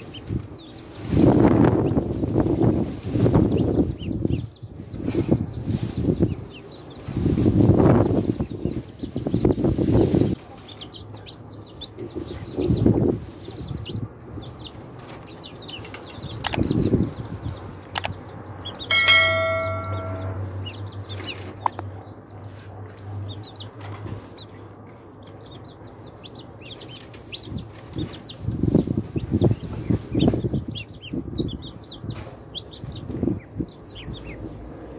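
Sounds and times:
chicks and ducklings peeping: 0:00.0 - 0:34.9
bell-like tone: 0:18.9 - 0:20.6.

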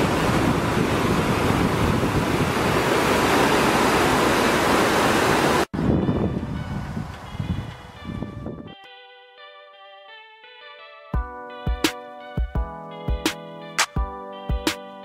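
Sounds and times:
water rushing through weir: 0:00.0 - 0:05.7.

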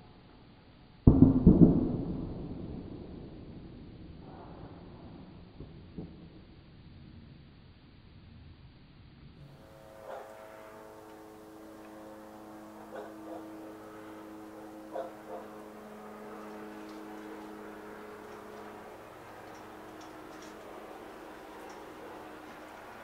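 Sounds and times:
steady droning hum: 0:00.0 - 0:23.0
dog barking: 0:10.0 - 0:10.4, 0:12.8 - 0:13.5, 0:14.9 - 0:15.6.

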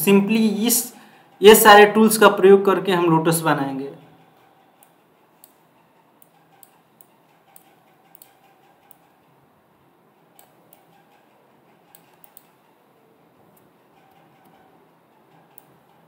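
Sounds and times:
computer mouse buttons clicking: 0:04.4 - 0:05.6, 0:06.2 - 0:09.2, 0:10.3 - 0:12.6, 0:13.5 - 0:16.0.

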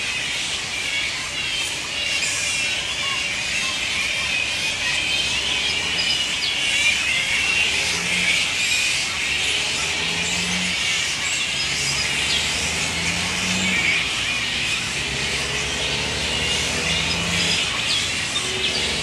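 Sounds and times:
flying foxes squeaking and screeching: 0:00.0 - 0:19.0.

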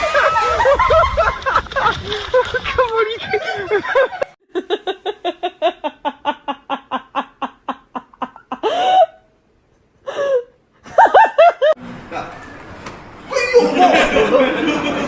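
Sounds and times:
person laughing hard: 0:00.0 - 0:02.6, 0:03.3 - 0:09.2, 0:13.3 - 0:15.0.

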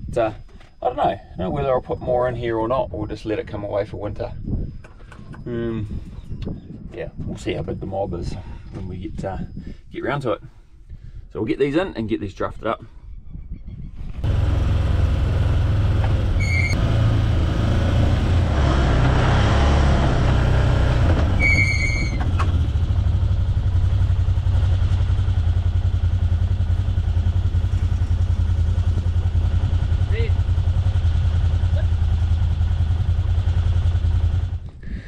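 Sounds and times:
vehicle engine running: 0:14.2 - 0:34.8.

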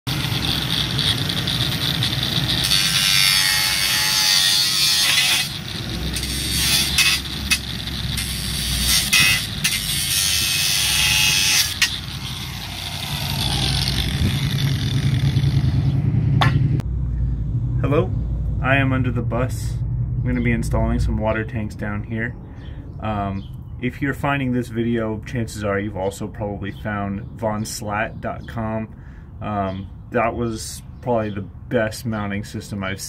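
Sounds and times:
angle grinder cutting steel: 0:00.1 - 0:16.7
sharp knocks: 0:16.3 - 0:16.8.

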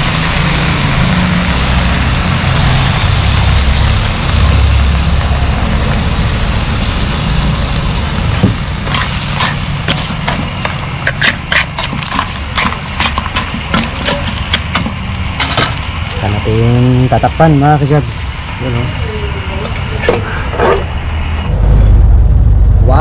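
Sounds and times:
metal ladle stirring in wok: 0:08.7 - 0:15.8
steady low rumble: 0:21.0 - 0:23.0.

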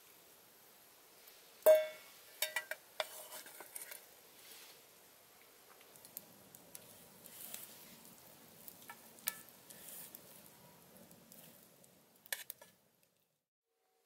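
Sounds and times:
knife scraping in metal bowl: 0:02.4 - 0:04.0.

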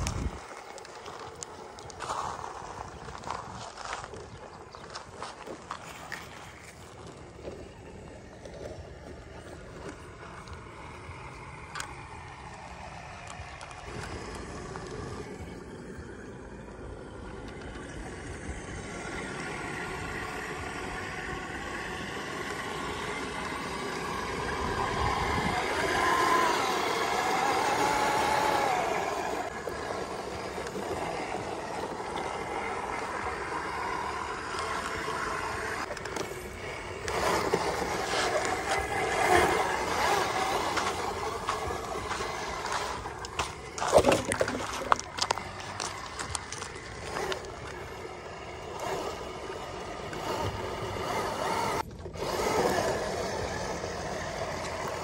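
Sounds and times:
toy car electric motor whining: 0:04.9 - 0:55.0
water splashing: 0:19.6 - 0:52.1.

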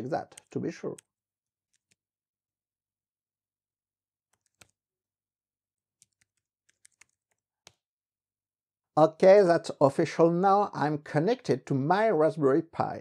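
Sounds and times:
faint keyboard keystrokes: 0:04.3 - 0:04.8, 0:06.0 - 0:07.8.

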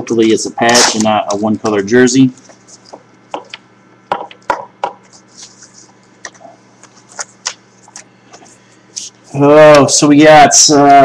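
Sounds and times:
paper rustling: 0:05.0 - 0:09.2.

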